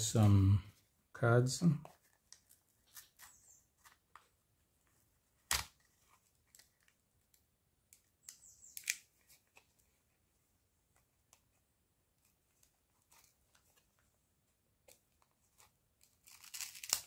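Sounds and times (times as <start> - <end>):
plastic card scraping and clicking: 14.8 - 17.0.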